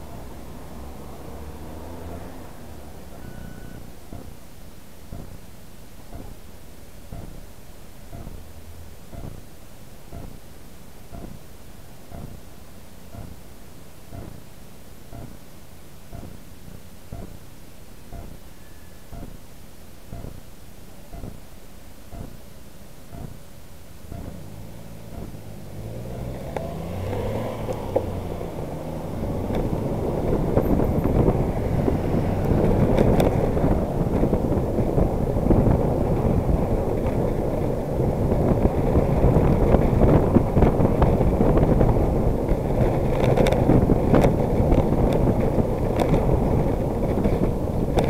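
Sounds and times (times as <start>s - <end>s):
car engine revving through gears: 0.0s - 4.3s, 24.2s - 39.8s
cars and van passing: 0.0s - 5.4s, 24.1s - 48.0s
road traffic: 0.0s - 19.4s, 23.1s - 48.0s
wind rumble: 24.0s - 48.0s.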